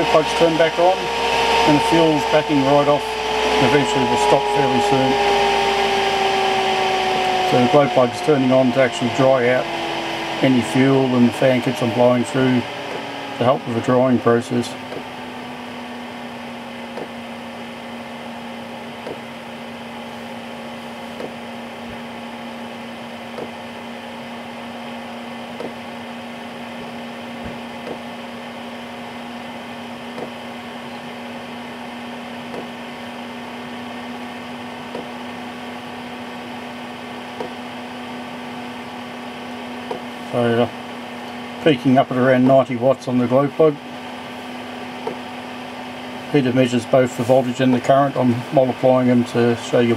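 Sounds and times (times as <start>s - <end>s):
heater fan humming: 0.0s - 49.9s
fuel pump ticking: 16.9s - 17.2s.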